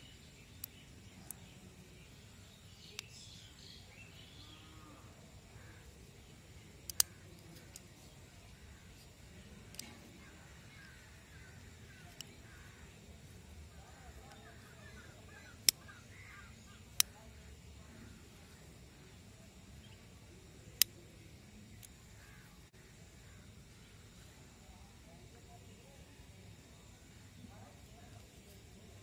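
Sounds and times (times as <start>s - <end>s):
faint bird calls: 0.0s - 20.1s, 21.9s - 24.8s
sharp clicks: 0.5s - 1.6s, 2.8s - 3.3s, 6.5s - 13.0s, 13.7s - 18.2s, 20.6s - 22.4s.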